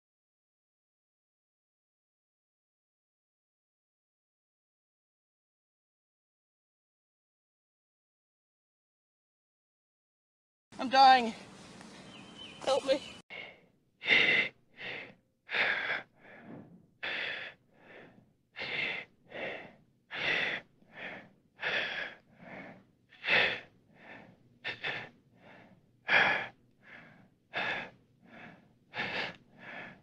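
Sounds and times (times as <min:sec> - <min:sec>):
person gasping for breath: 0:13.3 - 0:30.0.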